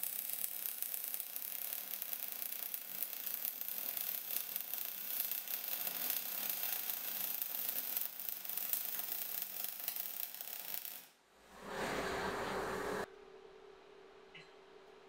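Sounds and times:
welding arc crackling: 0.0s - 11.7s.

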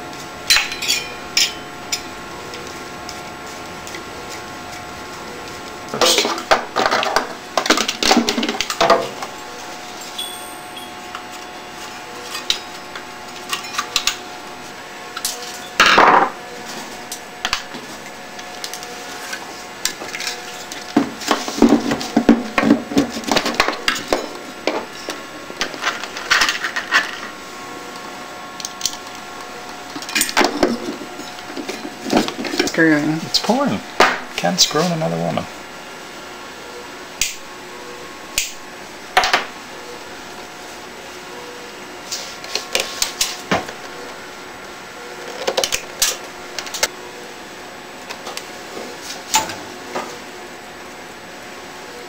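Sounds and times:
tools and parts clattering: 0.5s - 2.0s, 21.2s - 27.3s.

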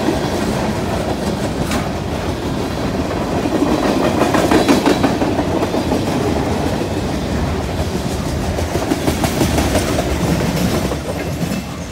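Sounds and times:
freight train rolling past: 0.0s - 11.9s
steel wheels clacking on rails: 0.0s - 11.9s.

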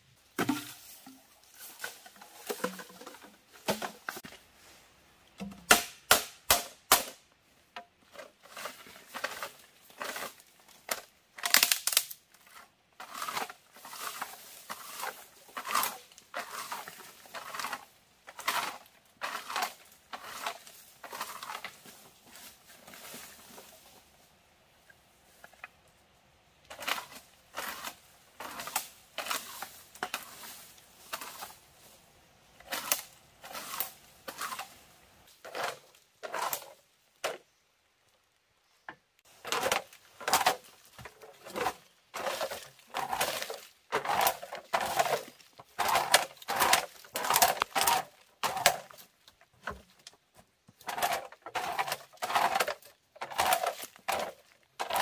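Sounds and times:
sharp knocks and cracks: 0.4s - 1.2s, 1.8s - 4.2s, 5.4s - 7.2s, 10.9s - 12.1s, 39.4s - 55.0s.

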